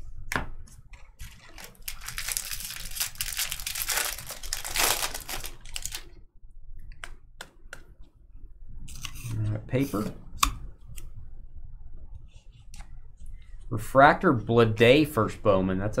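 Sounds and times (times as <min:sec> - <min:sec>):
foil wrapper crinkling and tearing: 0:01.2 - 0:06.1.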